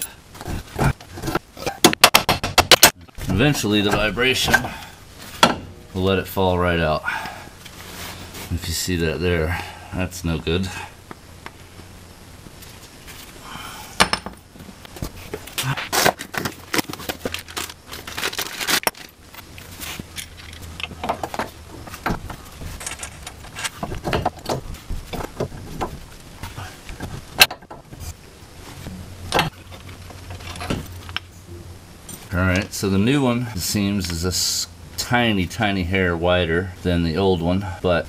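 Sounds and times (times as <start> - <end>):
metal parts and tools clinking: 20.0 - 24.6.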